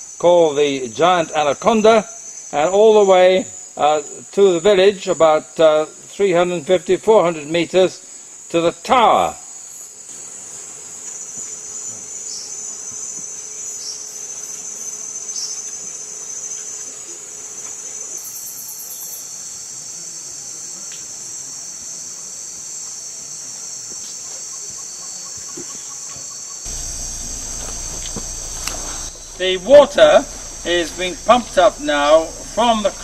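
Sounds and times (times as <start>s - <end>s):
insects shrilling: 0.0s - 33.0s
low rumble: 26.7s - 33.0s.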